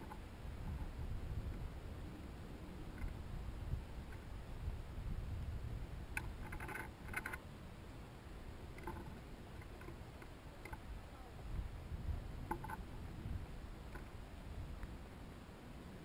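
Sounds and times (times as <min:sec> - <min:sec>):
bird pecking seed on wood: 0:06.1 - 0:07.4, 0:08.7 - 0:10.9, 0:12.4 - 0:12.9.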